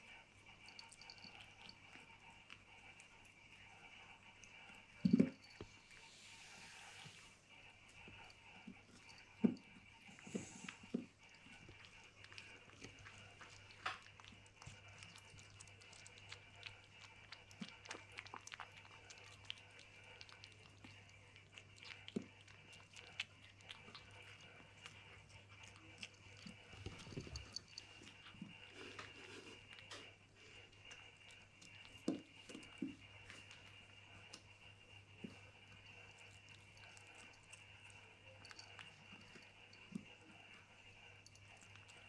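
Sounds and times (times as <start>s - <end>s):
kitten chewing and licking: 0.0s - 42.0s.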